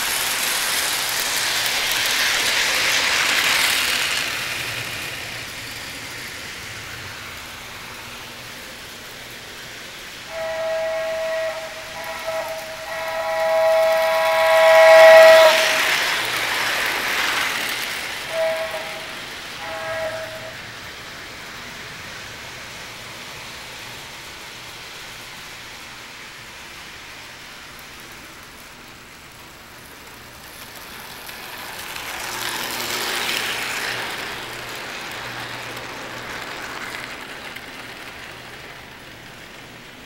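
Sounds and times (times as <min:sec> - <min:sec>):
model train motor whirring: 0:00.0 - 0:21.8, 0:30.4 - 0:40.0
wheels rattling on rails: 0:00.0 - 0:40.0.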